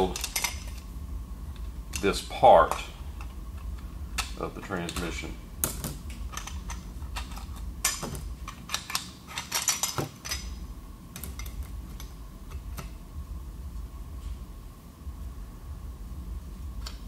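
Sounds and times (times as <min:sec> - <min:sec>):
metal parts clinking on workbench: 0:00.0 - 0:00.8, 0:04.2 - 0:10.6.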